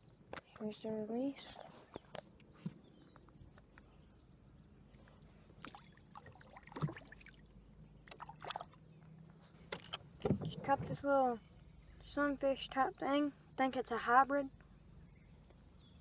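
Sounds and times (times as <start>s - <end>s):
faint water sounds: 0.0s - 15.0s.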